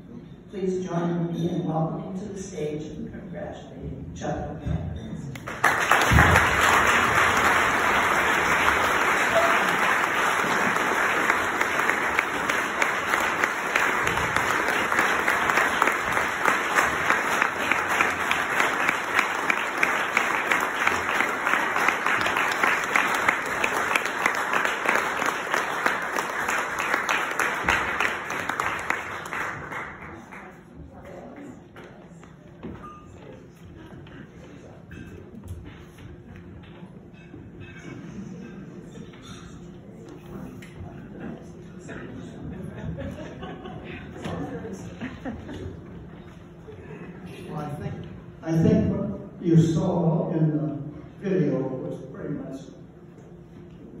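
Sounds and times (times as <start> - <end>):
audience applauding: 5.4 - 30.8.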